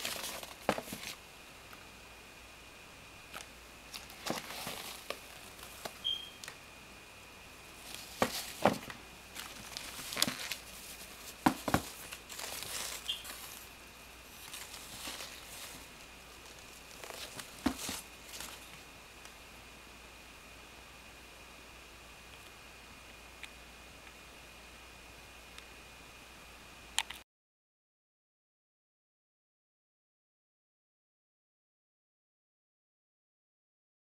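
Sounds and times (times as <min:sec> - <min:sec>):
sneaker handling knocks and rustles: 0:00.0 - 0:01.2, 0:04.0 - 0:06.0, 0:07.8 - 0:13.6, 0:17.0 - 0:18.8.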